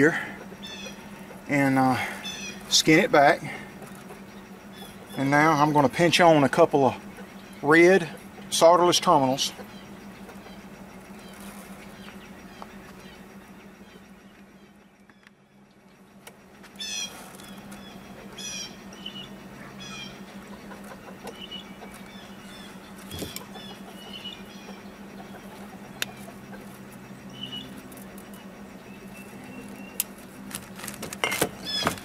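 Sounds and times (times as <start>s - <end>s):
birds chirping: 0.0s - 32.0s
steady low hum: 0.0s - 32.0s
wires and terminals clicking: 29.4s - 32.0s.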